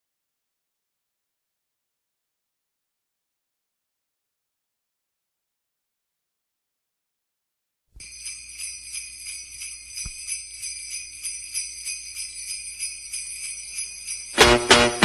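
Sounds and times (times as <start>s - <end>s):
sleigh bells shaken: 8.0s - 15.0s.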